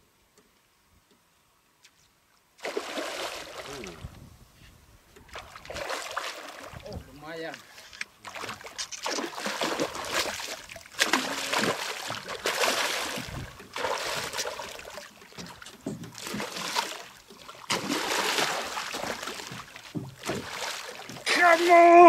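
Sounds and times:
fish splashing at the surface: 0:02.6 - 0:04.0, 0:05.3 - 0:06.8, 0:08.2 - 0:15.6, 0:16.2 - 0:22.0.

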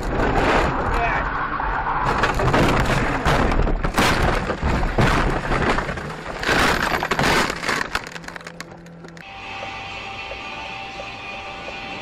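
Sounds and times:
car crash bangs and crunching: 0:00.0 - 0:01.0, 0:02.0 - 0:08.3.

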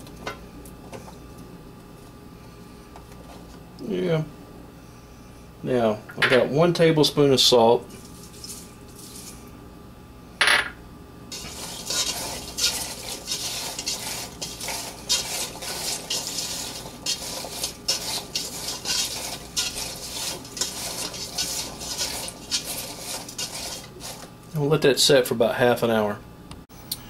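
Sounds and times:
vegetables rustling in a metal pot: 0:08.0 - 0:09.4, 0:11.3 - 0:24.4.

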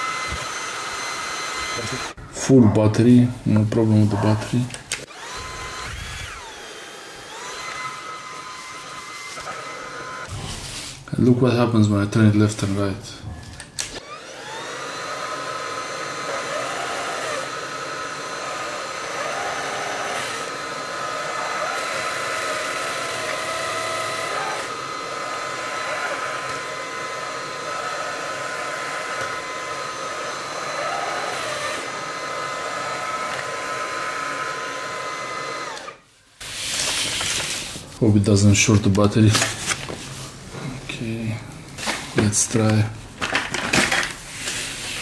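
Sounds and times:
brush roll motor hum: 0:00.0 - 0:02.2, 0:03.9 - 0:11.0, 0:14.0 - 0:37.8
vacuum cleaner motor whine: 0:00.0 - 0:02.2, 0:03.6 - 0:11.0, 0:13.5 - 0:37.6.

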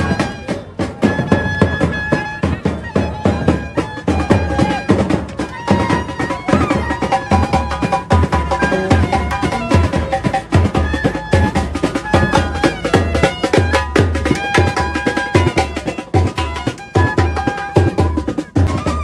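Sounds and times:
drums beating fast: 0:00.0 - 0:19.0
wind instruments holding notes: 0:00.0 - 0:19.0.

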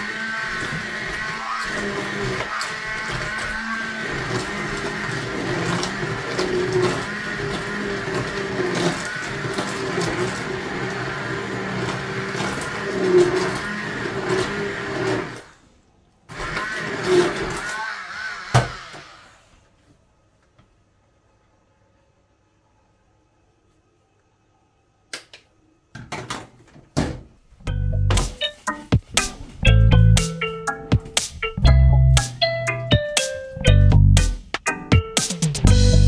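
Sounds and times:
blender motor running: 0:00.0 - 0:15.6, 0:16.3 - 0:19.4.

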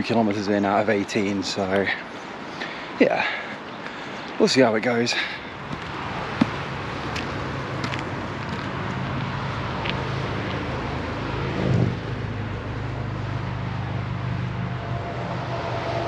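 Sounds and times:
traffic engine hum: 0:00.0 - 0:16.0
vehicle passing loudly: 0:05.6 - 0:16.0.

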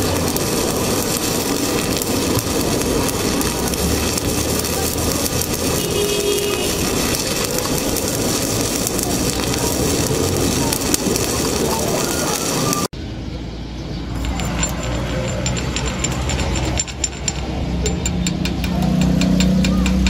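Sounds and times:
welding arc crackling: 0:00.0 - 0:12.9, 0:14.0 - 0:20.0
hammer tapping metal: 0:14.1 - 0:20.0.

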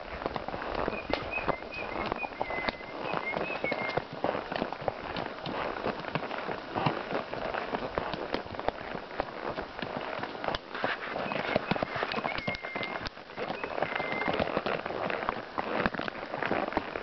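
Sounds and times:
horse hooves crunching on dirt: 0:00.0 - 0:17.0.

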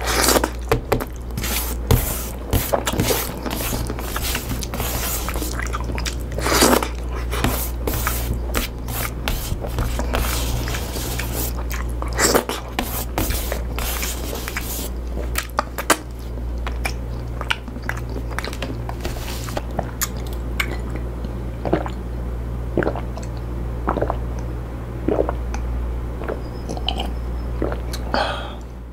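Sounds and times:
person chewing food: 0:00.0 - 0:22.0, 0:22.8 - 0:25.6
steady low hum: 0:00.0 - 0:28.9.

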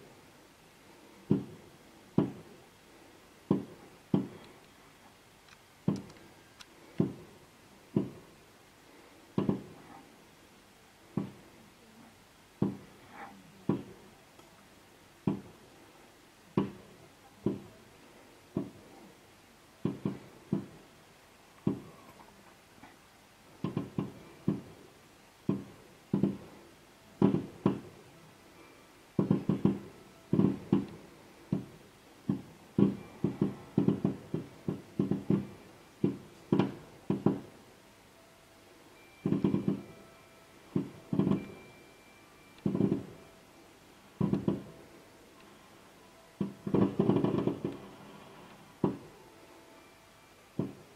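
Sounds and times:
distant fireworks booming: 0:01.2 - 0:02.7, 0:03.4 - 0:04.6, 0:06.9 - 0:08.4, 0:09.4 - 0:10.0, 0:19.8 - 0:20.9, 0:23.6 - 0:24.9, 0:25.5 - 0:37.6, 0:39.2 - 0:41.7, 0:42.6 - 0:43.3, 0:44.2 - 0:44.8, 0:46.4 - 0:49.2.

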